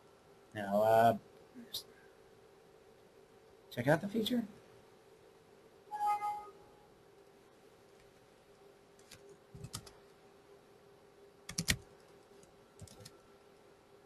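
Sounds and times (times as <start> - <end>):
faint steady hum: 0.0 - 14.0
keyboard typing: 9.0 - 10.0, 11.5 - 13.2.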